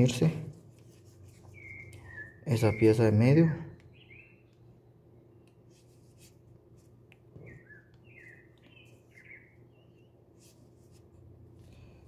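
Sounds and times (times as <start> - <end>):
bird chirps: 1.4 - 4.7, 7.4 - 10.2.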